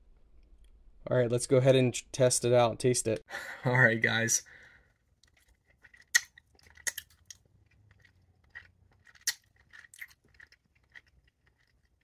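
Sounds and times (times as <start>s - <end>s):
person chewing gummy: 4.8s - 12.0s
wet mouth clicks and smacks: 5.2s - 12.0s.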